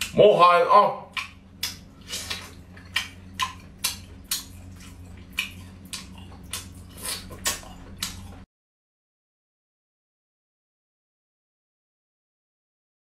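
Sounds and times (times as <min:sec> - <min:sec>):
faint low hum: 0:00.0 - 0:08.5
wet chewing and lip-smacking: 0:01.1 - 0:08.4.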